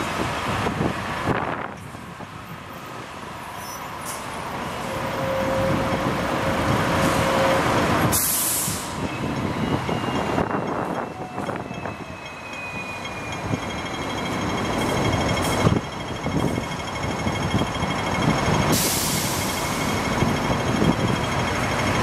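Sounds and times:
street traffic passing: 0.0s - 22.0s
tram rolling on rails: 0.0s - 22.0s
hiss of released air: 8.1s - 9.0s, 18.7s - 19.8s.

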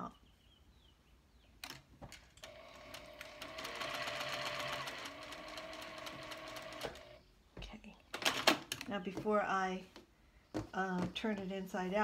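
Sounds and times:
sewing machine clicks: 1.6s - 7.2s
sewing machine stitching: 2.4s - 7.2s.

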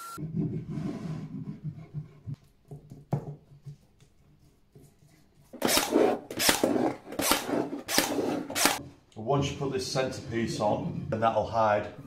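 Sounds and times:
nail gun firing: 5.6s - 8.8s.

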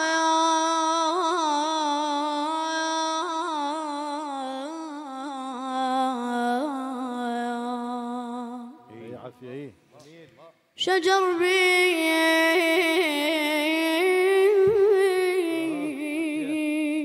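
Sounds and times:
boy singing ornamented note: 14.4s - 17.0s.

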